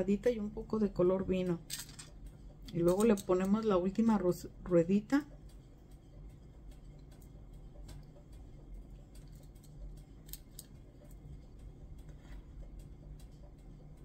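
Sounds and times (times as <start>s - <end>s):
low steady hum: 0.0s - 14.0s
metal beads clicking: 1.7s - 2.1s, 9.1s - 11.2s.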